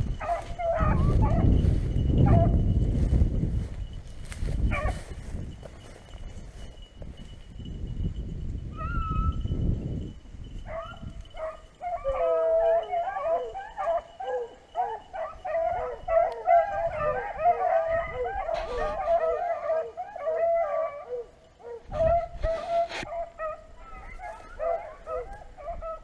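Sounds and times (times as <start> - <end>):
hounds baying: 0.0 - 2.7, 3.6 - 6.8, 8.7 - 9.4, 10.6 - 26.0
low rumble of microphone noise: 0.0 - 11.4.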